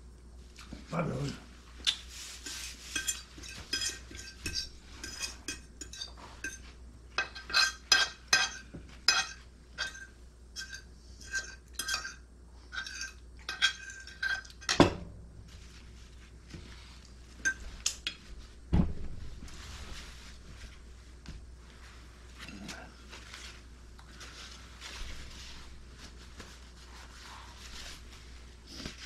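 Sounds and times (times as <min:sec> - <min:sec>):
cutlery clinking on plates: 0:02.9 - 0:12.2.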